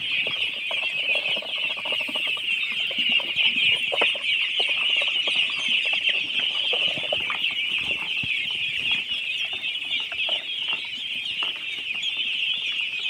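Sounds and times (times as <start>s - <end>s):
ducklings peeping: 0.0s - 13.0s.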